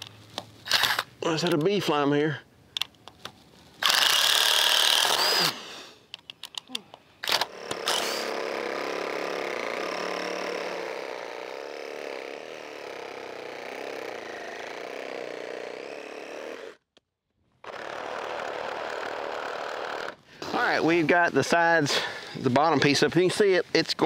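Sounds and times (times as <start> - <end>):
reciprocating saw cutting wood: 3.8 - 5.8, 7.2 - 16.8, 17.6 - 21.2.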